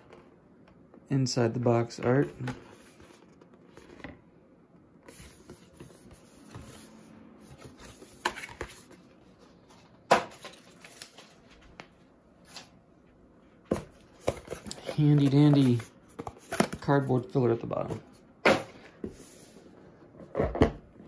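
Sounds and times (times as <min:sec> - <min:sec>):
cardboard packaging rustling: 0:05.1 - 0:11.8, 0:13.7 - 0:17.3.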